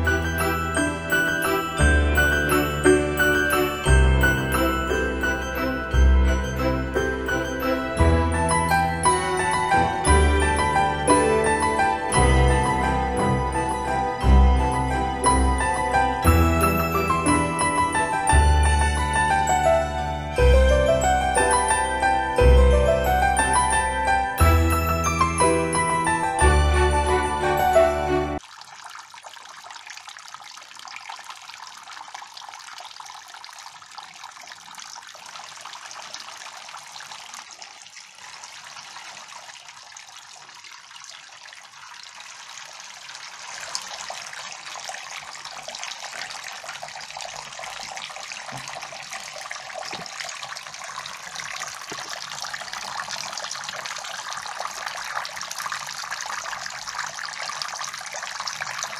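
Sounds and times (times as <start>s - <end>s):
water trickling onto pebbles: 28.4s - 58.9s.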